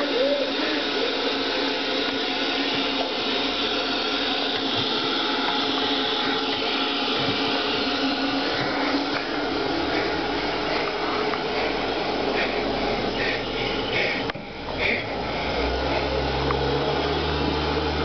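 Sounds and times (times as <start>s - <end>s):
television static hiss: 0.0s - 2.6s.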